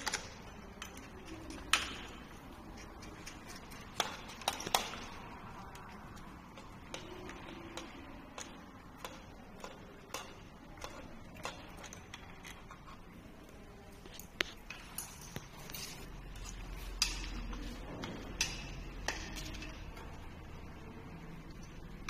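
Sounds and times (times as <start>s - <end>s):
light metallic clicks and clinks: 14.2s - 20.2s.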